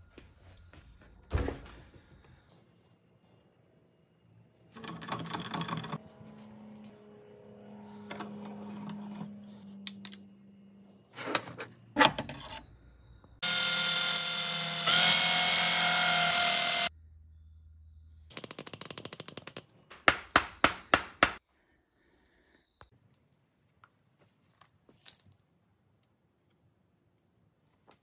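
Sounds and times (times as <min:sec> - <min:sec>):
power drill boring plastic: 0:13.4 - 0:16.9.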